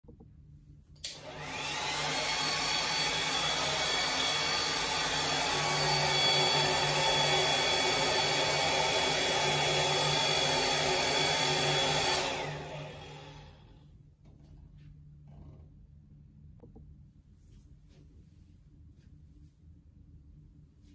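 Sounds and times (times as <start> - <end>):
hair dryer switch click: 1.0 - 1.6
hair dryer running: 1.0 - 13.7.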